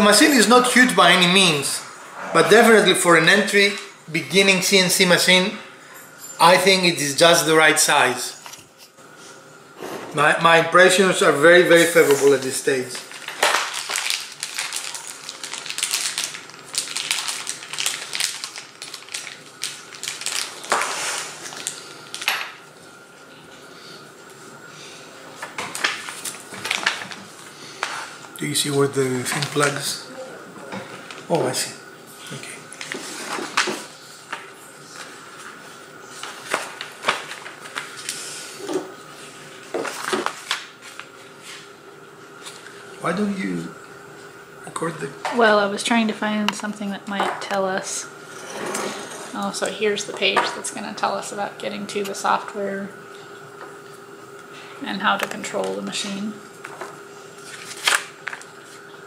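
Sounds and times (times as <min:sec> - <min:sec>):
plastic bag crinkling: 0:12.8 - 0:22.6.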